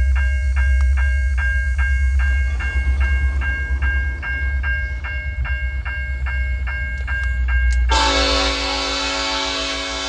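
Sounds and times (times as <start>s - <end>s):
railroad crossing bell ringing: 0.0s - 10.0s.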